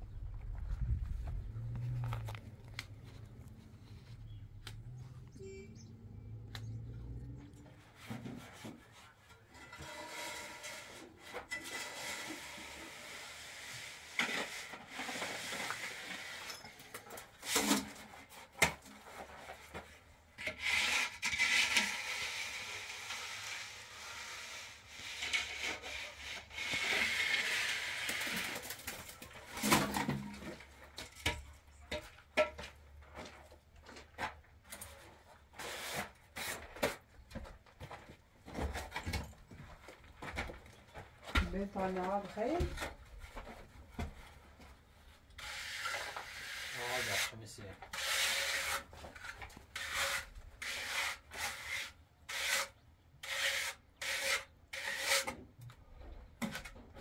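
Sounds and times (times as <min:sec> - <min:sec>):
scraping on hard surface: 0:07.7 - 0:38.0, 0:41.4 - 0:55.4.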